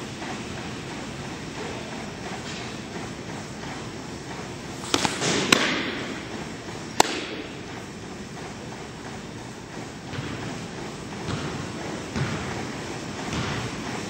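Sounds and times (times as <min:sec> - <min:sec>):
ball popping into mitt: 0:04.8 - 0:05.9, 0:07.0 - 0:07.5
sharp slaps: 0:04.8 - 0:06.1, 0:06.9 - 0:07.5.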